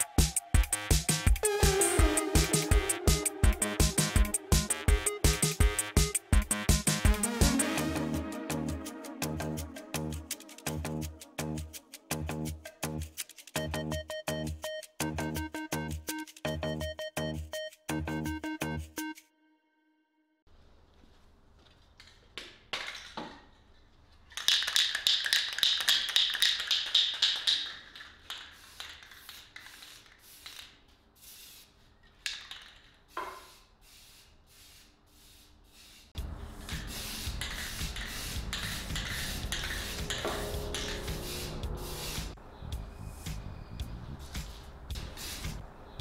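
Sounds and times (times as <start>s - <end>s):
spray can ball rattling: 10.2s - 13.7s, 24.2s - 42.4s, 44.5s - 45.6s
spray paint hiss: 24.5s - 42.4s, 44.3s - 45.6s.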